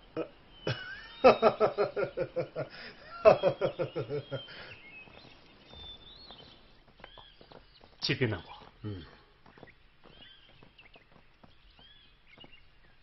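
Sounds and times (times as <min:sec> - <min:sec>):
faint bird chirps: 0:00.0 - 0:13.0
man laughing loudly: 0:00.1 - 0:04.6.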